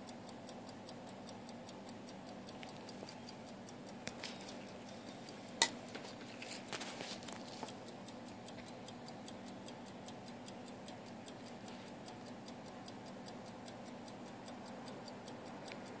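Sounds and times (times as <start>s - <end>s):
pocket watch ticking: 7.4s - 16.0s.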